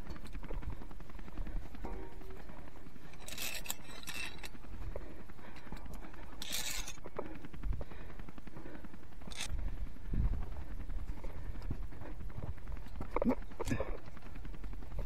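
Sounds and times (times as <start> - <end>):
gear and boots scraping on rock: 3.1 - 4.6, 6.4 - 7.0
low rumble on microphone: 9.4 - 15.0.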